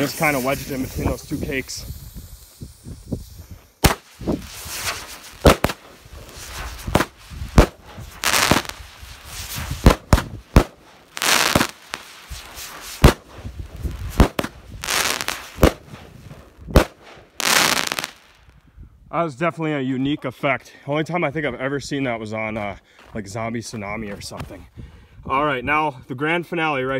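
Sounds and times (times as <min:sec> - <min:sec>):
firework shots: 0:00.0 - 0:18.4
firework crackle: 0:00.0 - 0:18.5.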